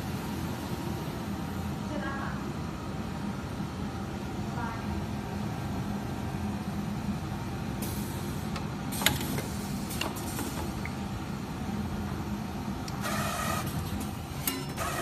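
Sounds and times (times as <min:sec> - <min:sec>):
stitching machine humming: 0:12.9 - 0:15.0.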